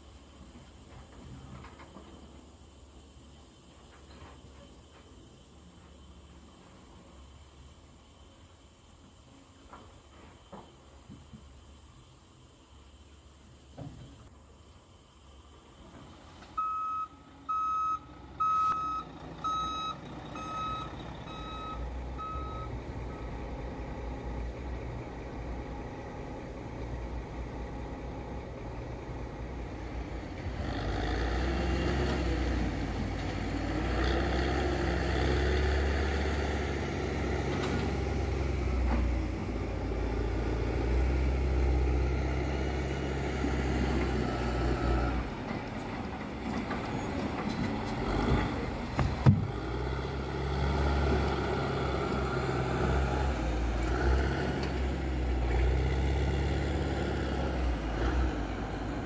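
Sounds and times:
diesel truck engine rumbling: 0:00.0 - 0:59.0
reversing alarm beeping: 0:16.6 - 0:23.4.

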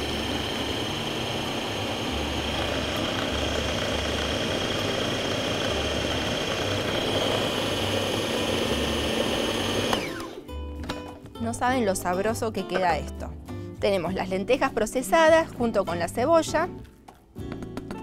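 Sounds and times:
food processor motor whining: 0:00.0 - 0:10.5.

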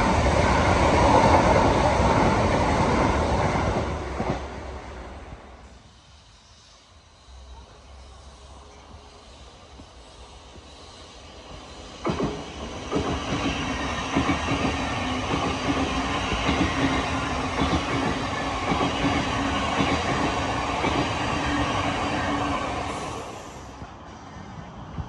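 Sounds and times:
train wheels clicking over rail joints: 0:08.7 - 0:23.0.

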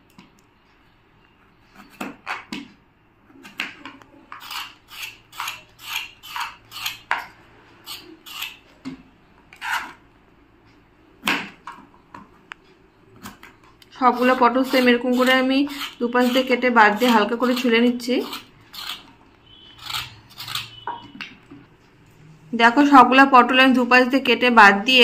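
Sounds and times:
knife scraping gourd skin: 0:03.4 - 0:08.6, 0:09.5 - 0:10.0, 0:14.1 - 0:20.8.

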